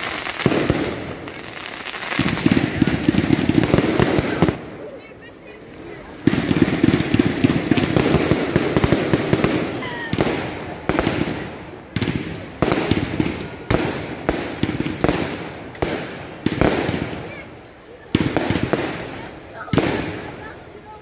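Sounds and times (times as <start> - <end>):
fireworks bangs: 0.0 - 21.0
fireworks crackling: 0.0 - 21.0.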